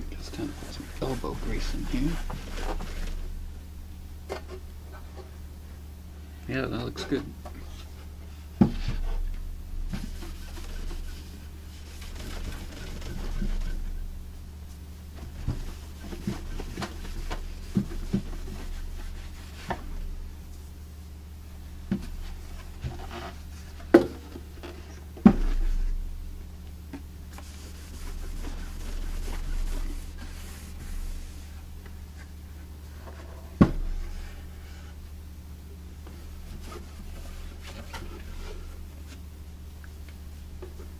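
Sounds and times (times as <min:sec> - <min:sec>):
cloth rubbing over waxed wood: 0:00.0 - 0:03.8, 0:09.8 - 0:20.8, 0:27.2 - 0:35.1, 0:36.0 - 0:39.4
steady low hum: 0:00.0 - 0:40.9.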